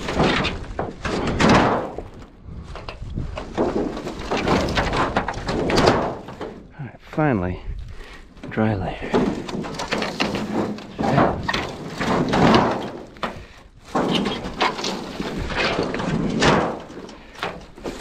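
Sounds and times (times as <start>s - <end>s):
metal roofing sheets scraping: 0.0s - 6.7s, 7.9s - 18.0s.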